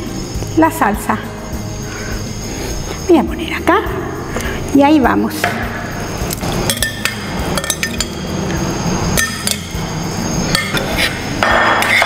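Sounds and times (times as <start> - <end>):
utensil clinking against pan: 6.7 - 8.2
utensil scraping pan: 10.5 - 12.0.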